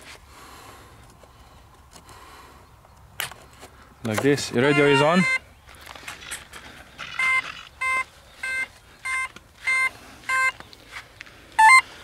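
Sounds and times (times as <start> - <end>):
speed controller beeping through motor: 4.6 - 5.4, 7.1 - 10.6, 11.6 - 11.8.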